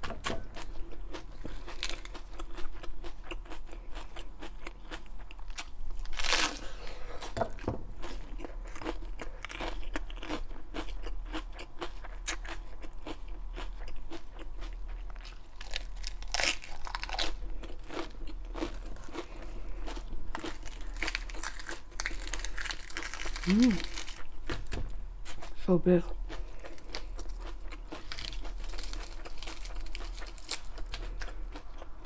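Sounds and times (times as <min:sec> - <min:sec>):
crunching and chewing lettuce: 0:00.0 - 0:32.0
lettuce leaves tearing: 0:06.0 - 0:06.7, 0:20.3 - 0:24.2, 0:28.0 - 0:31.0.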